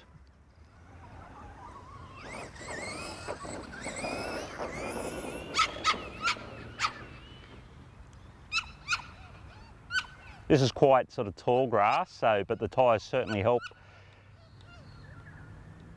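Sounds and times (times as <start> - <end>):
dog whining: 4.8 - 7.3.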